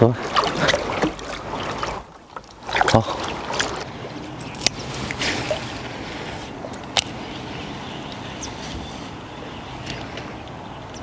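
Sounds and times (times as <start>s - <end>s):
water lapping against shore: 0.0s - 11.0s.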